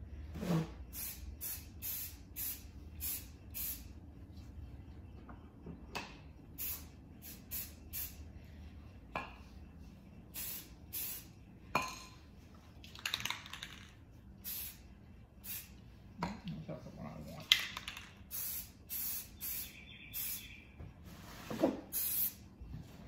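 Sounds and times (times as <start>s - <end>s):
spray can hissing in spurts: 0.9s - 3.9s, 6.6s - 8.2s, 10.3s - 11.3s, 14.4s - 14.8s, 15.4s - 15.8s, 17.8s - 20.5s, 21.9s - 22.4s.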